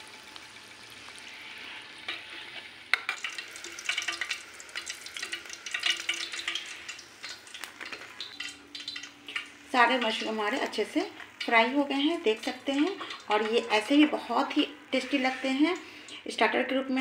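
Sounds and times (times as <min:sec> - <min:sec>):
food deep-frying in oil: 0:00.0 - 0:17.0.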